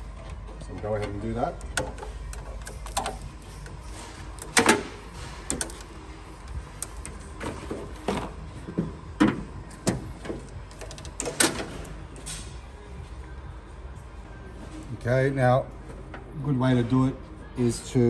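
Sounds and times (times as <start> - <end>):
hands handling wiring and zip ties: 0.2 - 8.3.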